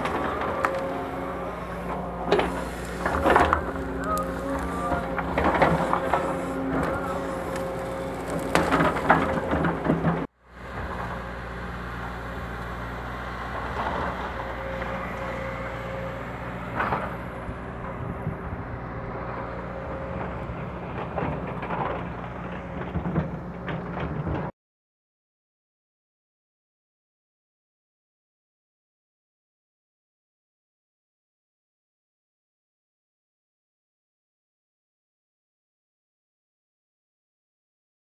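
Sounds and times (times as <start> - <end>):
brush and wood cracking: 0.0 - 10.2
excavator diesel engine running: 0.0 - 24.5.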